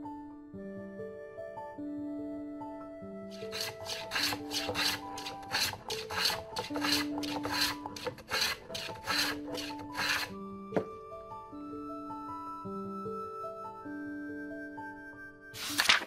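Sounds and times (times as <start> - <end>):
soft background music: 0.0 - 16.0
hand tool rasping wood: 3.3 - 10.3.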